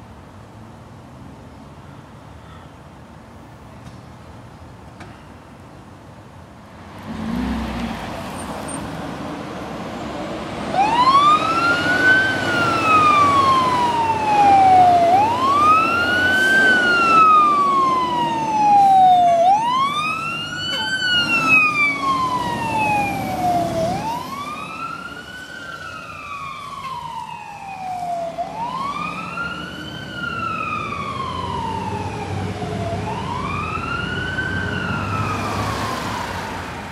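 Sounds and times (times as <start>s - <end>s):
fire truck siren wailing: 10.6s - 36.9s.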